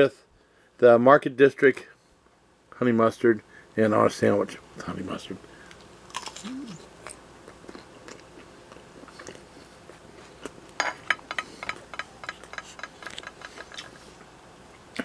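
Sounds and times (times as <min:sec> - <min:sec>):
person chewing: 0:05.6 - 0:10.8.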